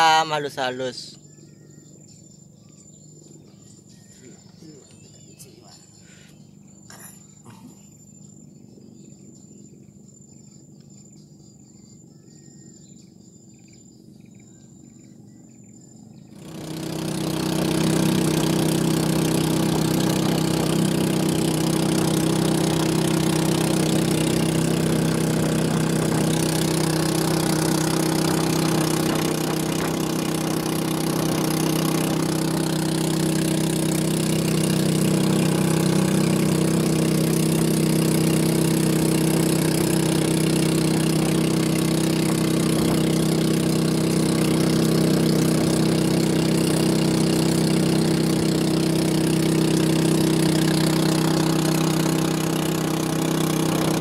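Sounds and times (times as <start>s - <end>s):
insect chirps: 0.0s - 53.6s
high-pitched insect drone: 0.0s - 54.0s
small boat engine running: 0.0s - 54.0s.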